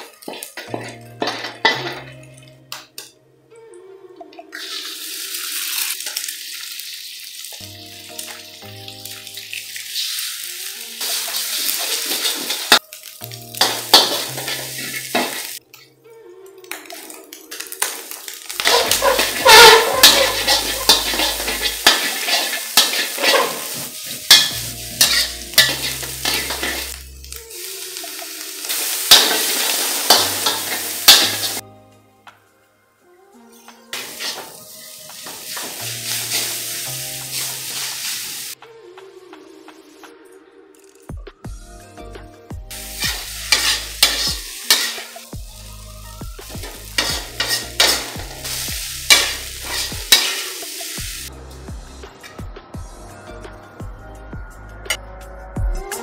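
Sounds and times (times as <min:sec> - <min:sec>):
frying sizzle: 0:00.0 - 0:02.1, 0:04.5 - 0:15.6, 0:16.7 - 0:31.6, 0:33.9 - 0:38.6, 0:42.5 - 0:51.7
background music: 0:00.0 - 0:06.0, 0:07.5 - 0:56.0
metal spatula scraping a wok: 0:11.0 - 0:12.8, 0:13.6 - 0:15.6, 0:18.6 - 0:27.0, 0:29.1 - 0:31.6, 0:34.0 - 0:36.6, 0:42.9 - 0:45.2, 0:46.6 - 0:50.8.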